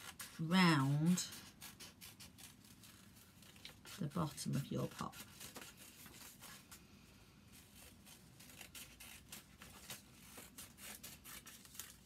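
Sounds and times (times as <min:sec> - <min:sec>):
scissors snipping paper: 0:00.0 - 0:06.6, 0:07.5 - 0:12.0.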